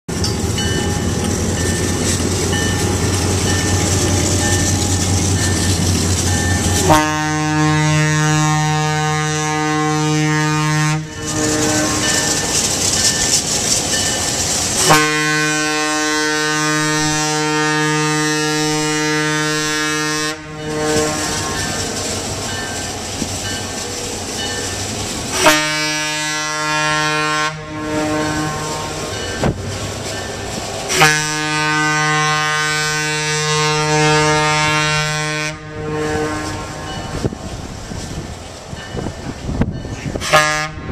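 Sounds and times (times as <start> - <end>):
diesel engine rumbling: 0.1 - 40.9
train rolling across a steel bridge: 0.1 - 40.9
locomotive horn blasts: 5.6 - 12.7, 14.7 - 22.0, 25.3 - 29.5, 30.9 - 37.2, 40.1 - 40.9.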